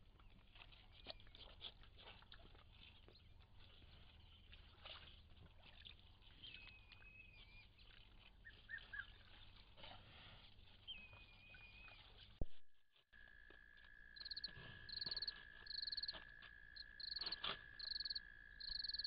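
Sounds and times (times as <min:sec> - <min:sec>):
animals splashing and slurping water: 0:00.0 - 0:12.4, 0:13.2 - 0:19.0
bird chirps: 0:14.2 - 0:16.2, 0:16.8 - 0:19.0.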